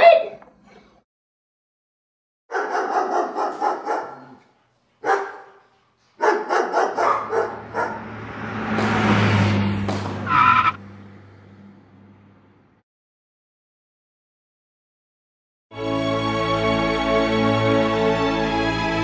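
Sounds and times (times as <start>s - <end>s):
dog barking: 2.5s - 4.4s, 5.0s - 8.2s
car engine rushing: 7.3s - 12.7s.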